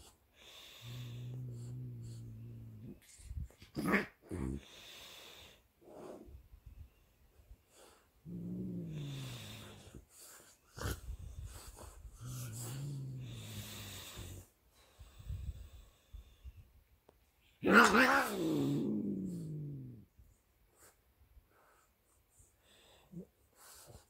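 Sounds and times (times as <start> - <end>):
dog growling low: 0.8 - 4.7, 8.2 - 10.0, 10.7 - 14.5, 17.6 - 20.2.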